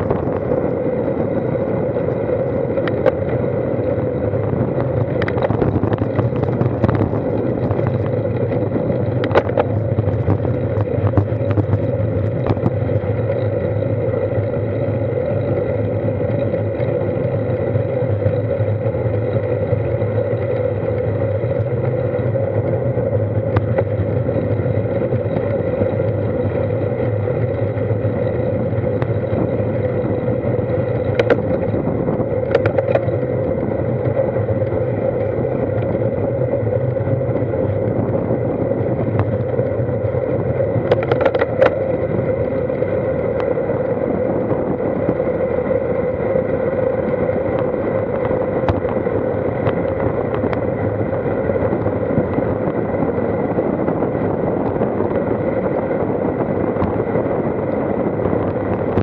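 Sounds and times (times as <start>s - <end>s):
bike clicks and knocks: 0.0s - 43.8s
road rumble: 0.0s - 59.0s
wind: 0.0s - 59.0s.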